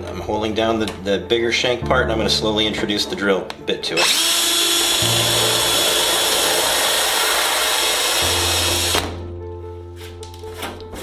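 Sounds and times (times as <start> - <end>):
power drill drilling out rivet: 4.0 - 9.0.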